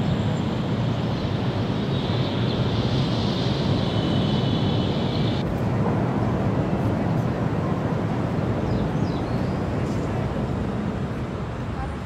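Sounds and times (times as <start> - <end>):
thin high hiss: 0.0 - 5.4.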